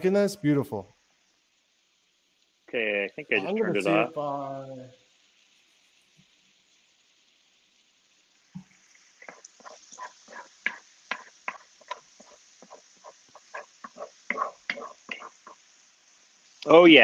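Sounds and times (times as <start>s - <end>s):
faint hiss: 0.0s - 17.0s
spatula knocking and scraping skillet: 9.2s - 15.6s.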